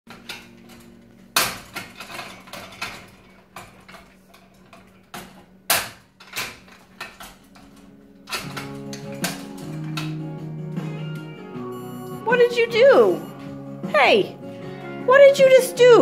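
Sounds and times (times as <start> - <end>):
metal gate rattling and clanking: 0.1 - 10.3.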